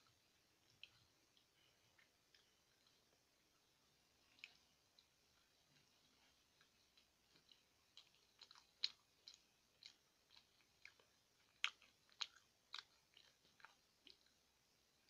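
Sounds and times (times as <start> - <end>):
chewing with wet mouth smacks: 4.3 - 14.4.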